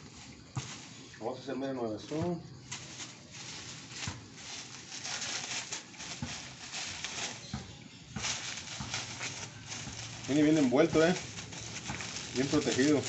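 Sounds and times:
bubble wrap crinkling: 2.6 - 13.0.

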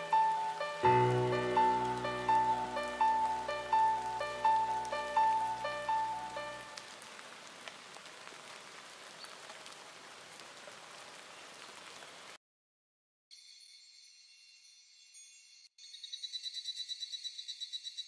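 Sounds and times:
lo-fi piano notes: 0.0 - 6.8
rain patter: 0.0 - 12.4.

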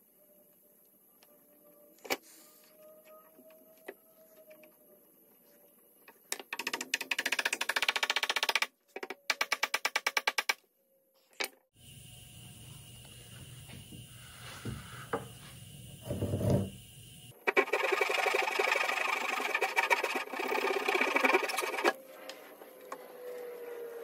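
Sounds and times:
hand saw sawing wood: 17.4 - 22.0.

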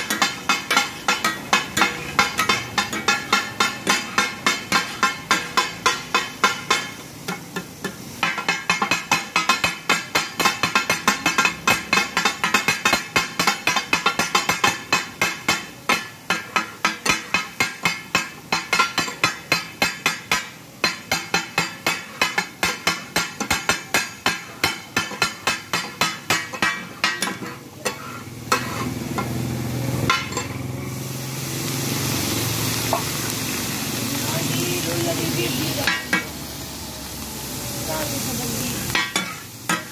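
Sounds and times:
metal spatulas striking griddle: 0.0 - 29.4, 30.0 - 30.7, 34.2 - 36.3, 38.8 - 39.9
liquid sizzling on hot griddle: 0.0 - 39.9.

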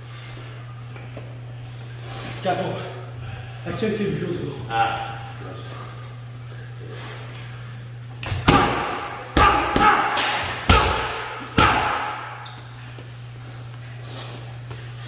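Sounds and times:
boxing gloves punching mitts: 8.2 - 12.4.

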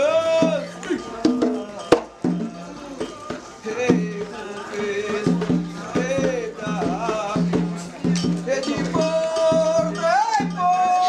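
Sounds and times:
voices singing a ritual chant: 0.0 - 11.0.

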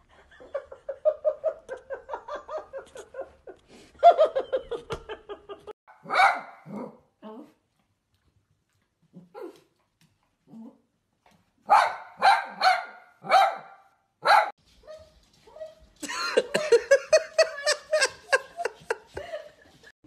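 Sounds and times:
small dog barking and yelping: 5.9 - 7.0, 11.7 - 15.8.

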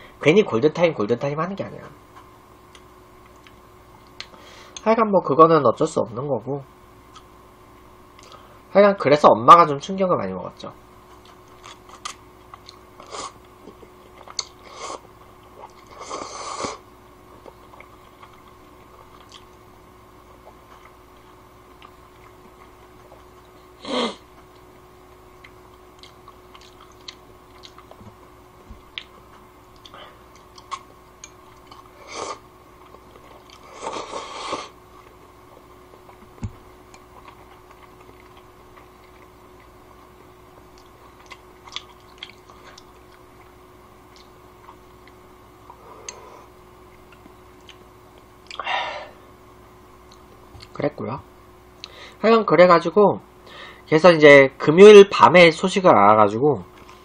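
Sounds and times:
faint steady hum: 0.0 - 57.0
person chewing: 11.1 - 19.6, 20.2 - 24.7, 25.3 - 39.8, 40.6 - 48.7
slurping noodles: 33.6 - 34.8.

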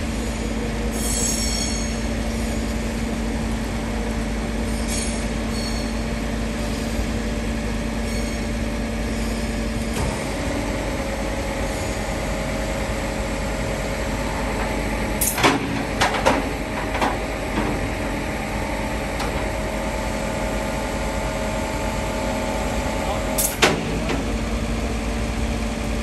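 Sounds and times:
truck engine idling: 9.6 - 26.0
metal clanks and clicks: 15.2 - 17.8.

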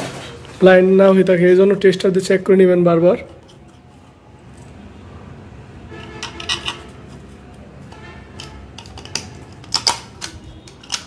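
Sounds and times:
plastic plate clinking on metal box: 8.4 - 11.0.

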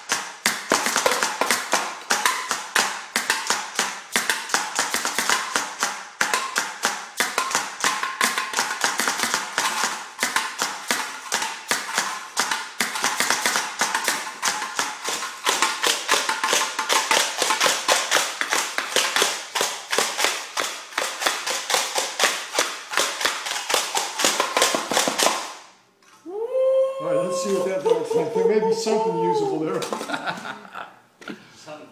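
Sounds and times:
stick beating a metal pot: 0.0 - 25.6.

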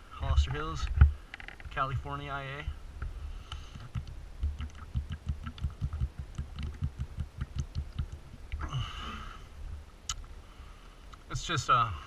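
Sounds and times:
breathy exhale: 3.2 - 3.9, 8.6 - 9.6, 10.4 - 11.1
person gulping water: 3.8 - 8.8.

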